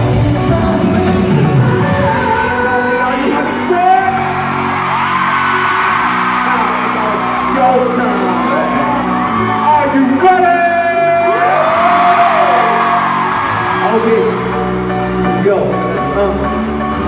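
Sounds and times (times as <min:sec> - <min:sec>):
group singing live: 0:00.0 - 0:03.4
pop backing track: 0:00.0 - 0:17.0
crowd whooping and cheering: 0:03.2 - 0:15.2.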